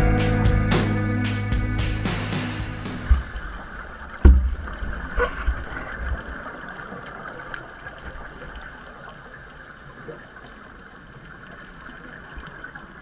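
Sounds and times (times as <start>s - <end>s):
faint steady hiss: 1.4s - 13.0s
muffled underwater thump: 2.6s - 3.6s, 4.2s - 5.5s
low underwater rumbling and gurgling: 3.0s - 13.0s.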